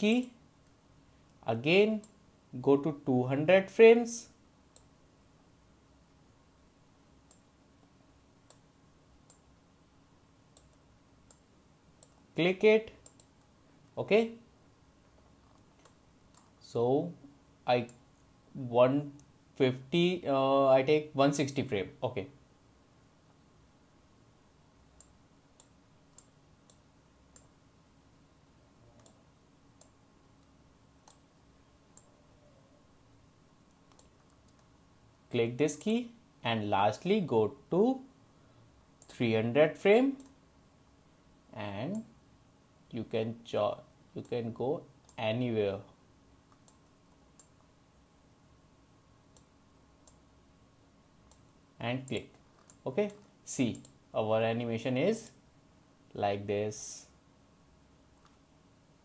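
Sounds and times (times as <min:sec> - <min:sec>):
faint room hiss: 0:00.0 - 0:59.0
computer mouse clicking: 0:10.5 - 0:11.4, 0:13.0 - 0:13.5, 0:15.4 - 0:16.6, 0:25.0 - 0:27.5, 0:29.0 - 0:29.2, 0:29.8 - 0:31.3, 0:33.7 - 0:34.7, 0:40.2 - 0:40.4, 0:46.5 - 0:47.7, 0:49.3 - 0:50.2, 0:51.2 - 0:51.5, 0:52.1 - 0:54.0.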